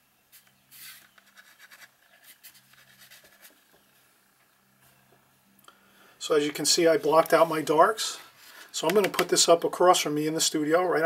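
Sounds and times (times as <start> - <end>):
faint electrical hum: 0.0 - 11.0
marker scratching on paper: 0.7 - 3.6
hand rustling on paper: 0.7 - 3.7.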